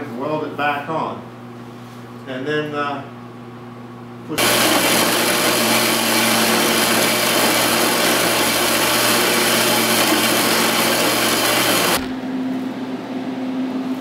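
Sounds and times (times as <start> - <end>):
power saw cutting steel: 4.4 - 12.0.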